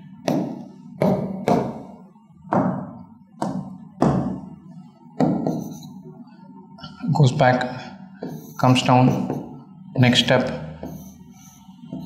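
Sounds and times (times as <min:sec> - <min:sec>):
marker knocking on whiteboard: 0:00.2 - 0:01.9, 0:02.5 - 0:04.5, 0:05.2 - 0:05.9, 0:08.2 - 0:08.5, 0:09.1 - 0:09.5, 0:10.8 - 0:11.1.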